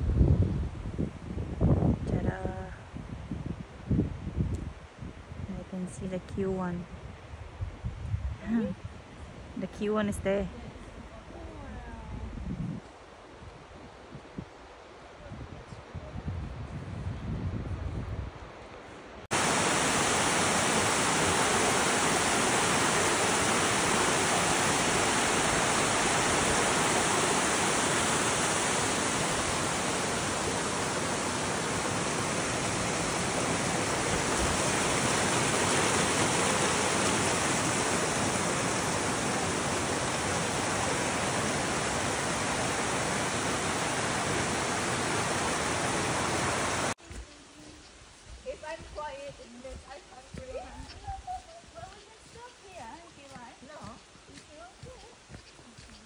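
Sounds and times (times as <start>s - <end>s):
waterfall rushing: 19.3s - 47.0s.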